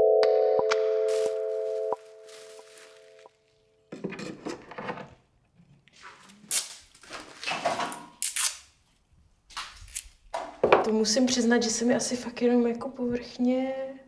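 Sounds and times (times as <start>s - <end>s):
music chord: 0.0s - 3.5s
plastic wrapping rustling: 1.1s - 3.7s.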